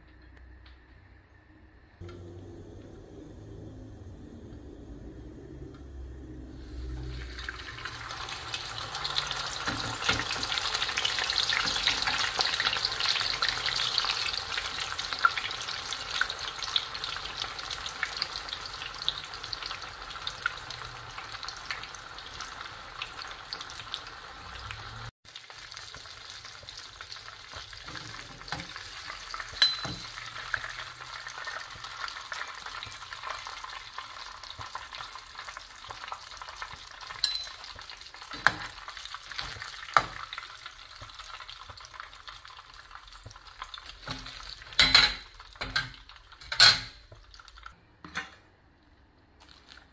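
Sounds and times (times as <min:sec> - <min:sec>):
food sizzling in oil: 0:06.6 - 0:47.7.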